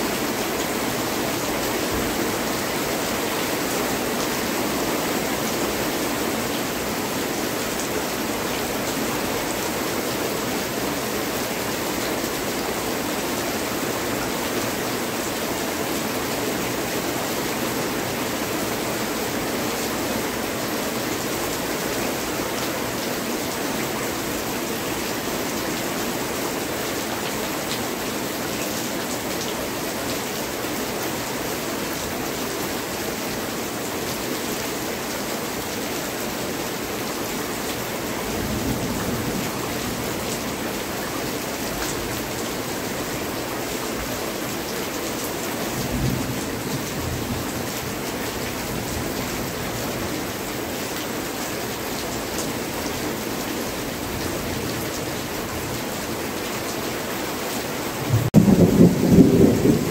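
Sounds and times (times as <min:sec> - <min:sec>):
heavy rain falling: 0:00.0 - 0:59.9.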